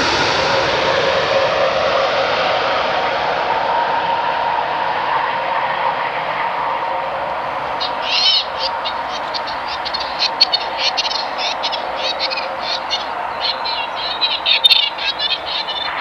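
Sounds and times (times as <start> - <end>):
jet engines rushing hum: 0.0 - 16.0
high chirping: 7.7 - 16.0.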